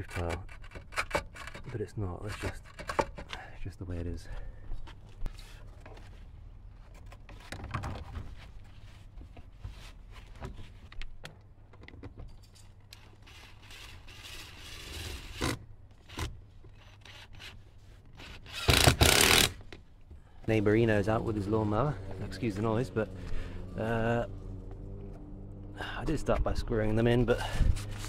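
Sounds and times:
cordless drill driving screws: 18.2s - 19.6s
lawnmower running: 21.1s - 25.8s.

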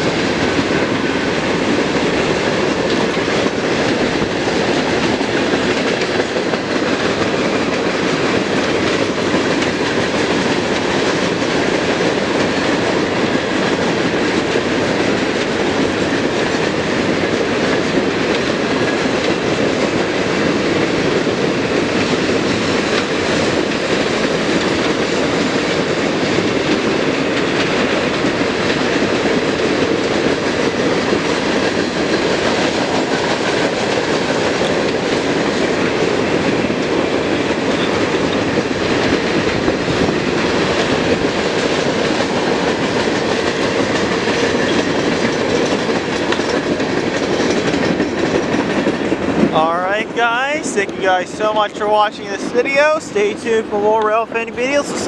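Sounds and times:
freight train wheels on rails: 0.0s - 55.0s.

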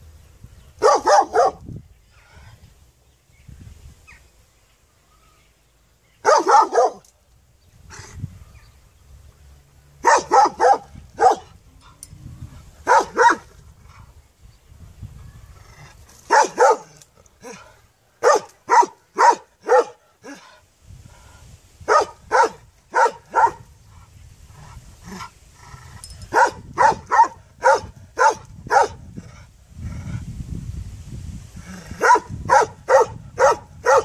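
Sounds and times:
large dog barking: 0.8s - 1.6s, 6.2s - 7.0s, 10.0s - 11.6s, 12.8s - 13.5s, 16.3s - 17.6s, 18.2s - 20.5s, 21.9s - 23.7s, 26.3s - 29.1s, 32.0s - 34.0s.

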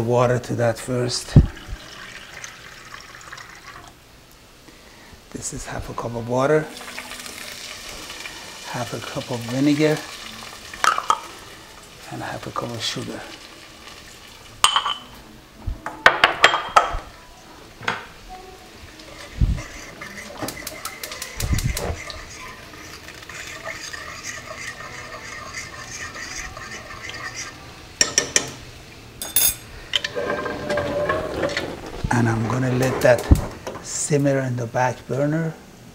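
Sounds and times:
metal utensils clinking on pot: 29.2s - 31.6s.

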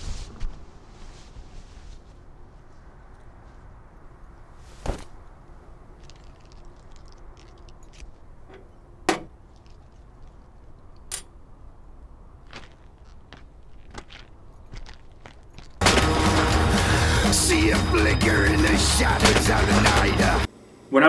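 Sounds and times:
knuckles cracking: 6.0s - 8.3s.

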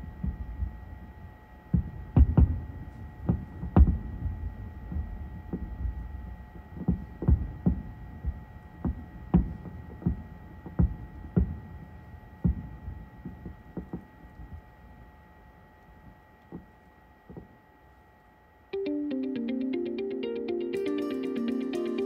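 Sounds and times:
fireworks bursting with deep booms: 1.7s - 14.0s.

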